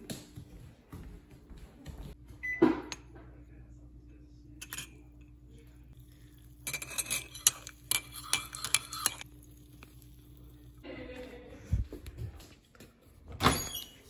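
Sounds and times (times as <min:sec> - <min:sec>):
spoon clinking in a mug: 0:04.6 - 0:05.2, 0:06.0 - 0:10.0.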